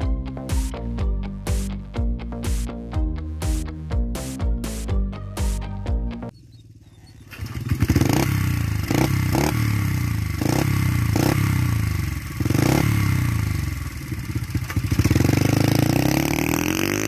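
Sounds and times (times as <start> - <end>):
dirt bike engine revving: 6.3 - 17.0.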